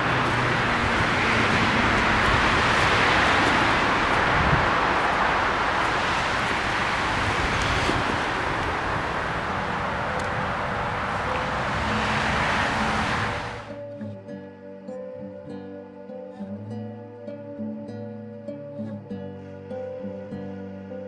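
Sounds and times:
road traffic rushing: 0.0 - 13.8.

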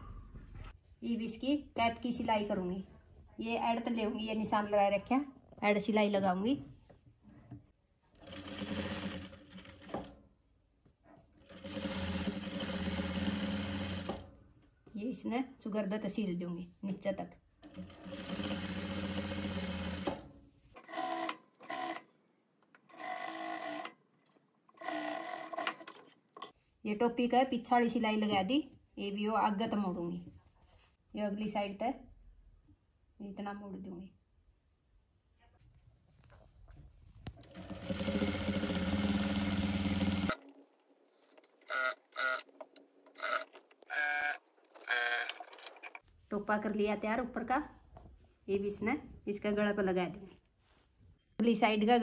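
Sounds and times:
sewing machine stitching: 8.2 - 10.2, 11.4 - 14.3, 17.6 - 22.0, 24.8 - 26.2, 37.4 - 40.4, 41.6 - 46.0.

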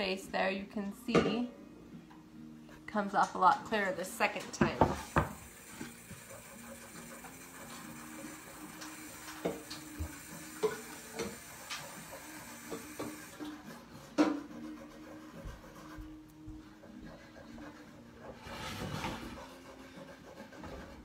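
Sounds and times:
knock on wooden board: 4.6 - 5.4.

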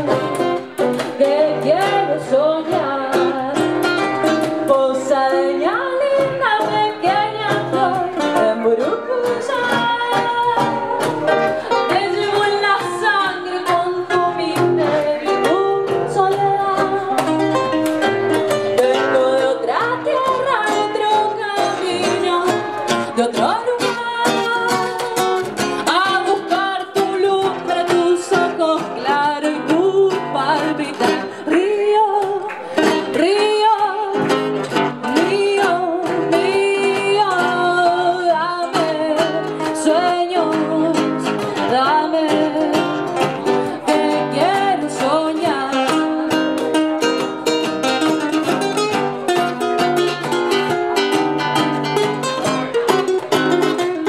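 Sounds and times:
plucked acoustic guitar: 0.0 - 54.0
woman singing folk song: 0.0 - 54.0.

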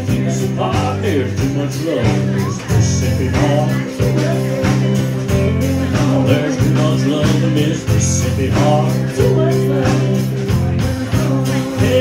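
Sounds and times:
acoustic guitar: 0.0 - 12.0
bass line: 0.0 - 12.0
drums keeping a beat: 0.0 - 12.0.

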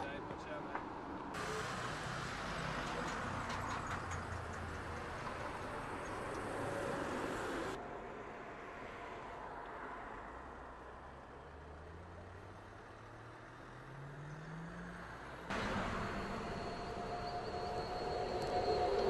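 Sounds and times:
outdoor road noise: 0.0 - 19.0
vehicle hum rising in pitch: 11.8 - 19.0.

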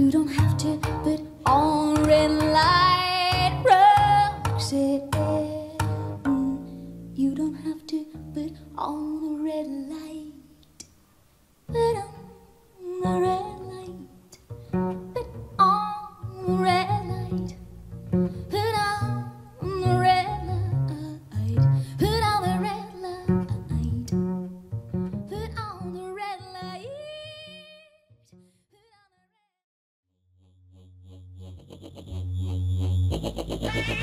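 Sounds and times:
plucked double bass: 0.0 - 8.7, 13.0 - 26.6, 31.0 - 34.0
woman singing with vibrato: 0.0 - 10.4.

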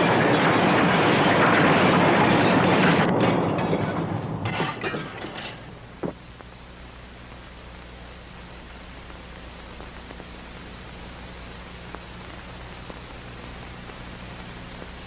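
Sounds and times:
clattering debris: 0.0 - 6.2.

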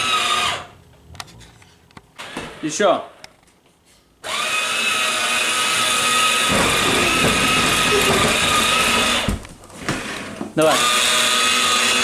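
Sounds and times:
electric motors whining: 4.2 - 12.0.

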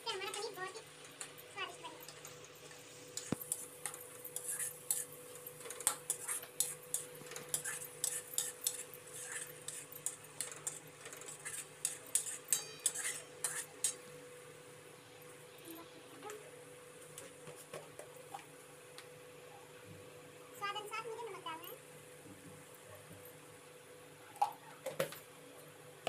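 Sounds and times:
metal spoon scraping a metal pan: 3.1 - 14.1.

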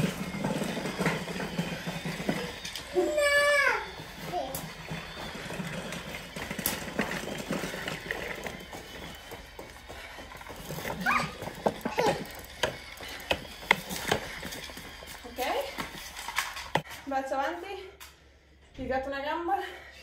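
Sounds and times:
footsteps on stone floor: 0.0 - 17.1.

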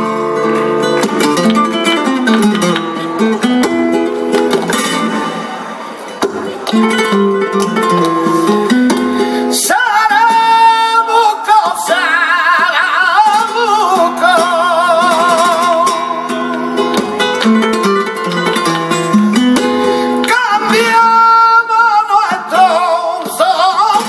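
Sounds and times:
flamenco guitar: 0.0 - 24.0
hand clapping: 0.9 - 3.8
man singing flamenco: 6.7 - 24.0.

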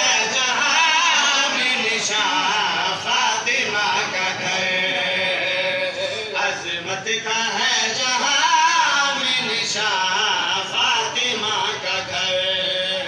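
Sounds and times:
men chanting in melodic style: 0.0 - 13.0.

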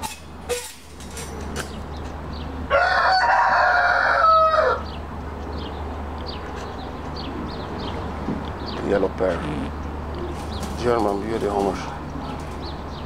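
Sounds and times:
rooster crowing: 2.7 - 4.9.

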